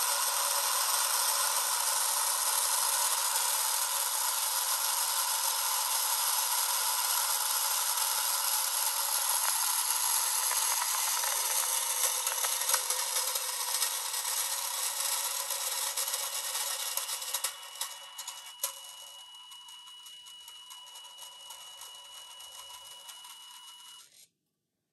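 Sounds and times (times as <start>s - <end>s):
twin engine sound through tiny speaker: 0.0s - 18.9s.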